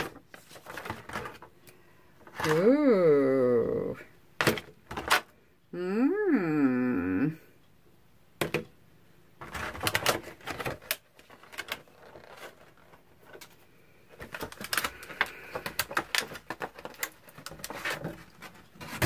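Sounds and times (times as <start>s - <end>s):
packaging clicks and crinkles: 0.0s - 2.5s, 9.4s - 19.0s.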